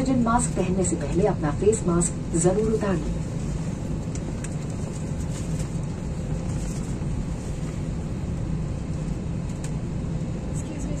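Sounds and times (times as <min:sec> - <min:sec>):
airliner cabin hum: 0:00.0 - 0:11.0.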